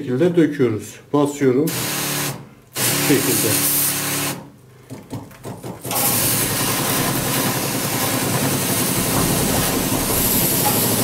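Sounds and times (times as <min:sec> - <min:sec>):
electric sprayer pump motor hum: 0:05.9 - 0:11.0.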